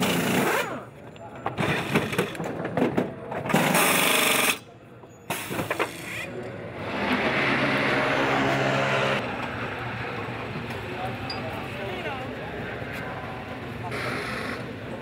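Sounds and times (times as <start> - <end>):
steady engine hum: 6.2 - 15.0.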